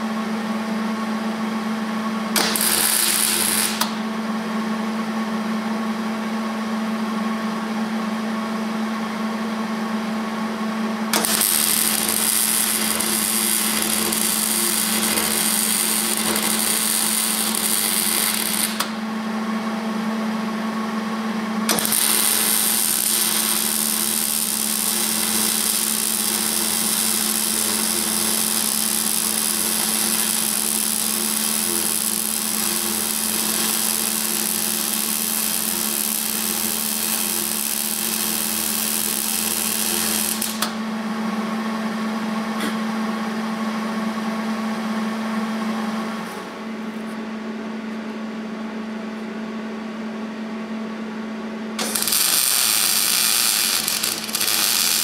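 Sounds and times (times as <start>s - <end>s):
welding arc crackling and hissing: 2.4s - 4.0s, 11.1s - 19.0s, 21.7s - 40.8s, 51.8s - 55.0s.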